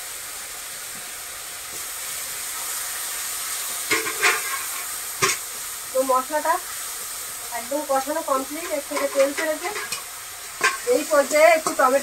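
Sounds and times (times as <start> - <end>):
spice paste sizzling in hot oil: 0.0 - 12.0
spatula scraping a pan: 3.8 - 5.4, 8.4 - 12.0.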